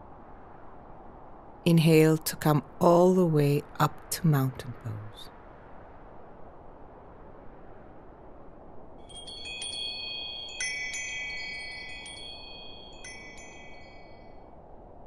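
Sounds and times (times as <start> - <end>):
chimes tinkling: 9.1 - 14.4.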